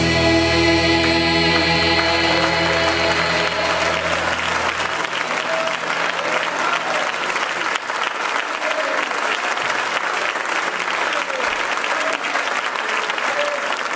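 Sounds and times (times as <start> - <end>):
held musical chord: 0.0 - 7.5
congregation applauding: 0.0 - 13.9.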